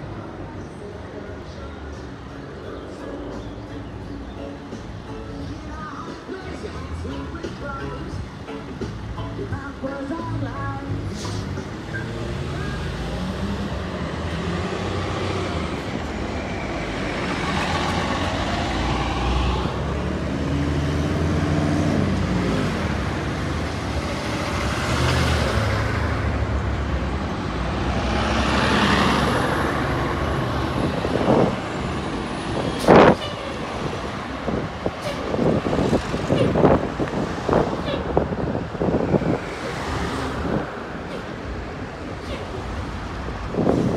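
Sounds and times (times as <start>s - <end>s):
buses and truck passing: 0.0s - 43.9s.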